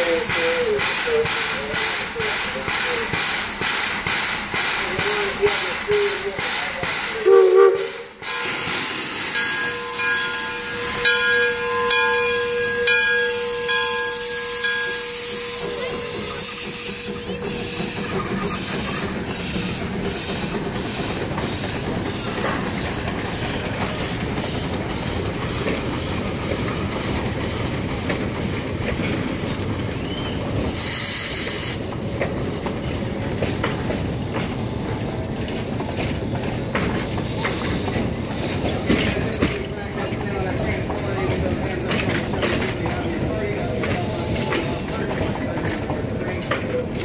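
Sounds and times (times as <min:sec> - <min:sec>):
steam hissing: 0:00.0 - 0:35.1, 0:36.1 - 0:40.2, 0:41.9 - 0:45.6
rumble of rail cars: 0:00.0 - 0:47.0
steam whistle chord: 0:07.2 - 0:17.9
locomotive exhaust chuffing: 0:13.5 - 0:31.9.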